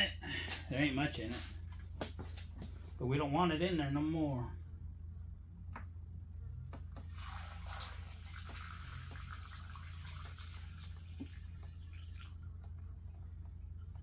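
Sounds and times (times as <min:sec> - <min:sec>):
gasoline pouring into funnel: 0:07.0 - 0:12.6.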